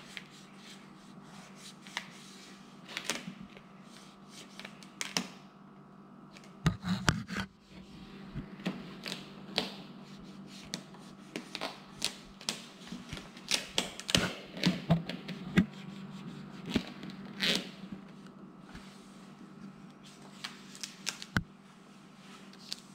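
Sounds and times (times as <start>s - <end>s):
steady low hum: 0.0s - 22.9s
tint film crinkling and clicking: 20.4s - 21.5s.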